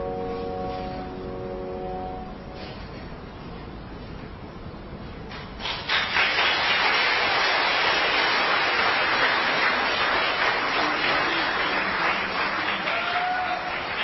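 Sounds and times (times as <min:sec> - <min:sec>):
audience applause: 0:05.6 - 0:14.0.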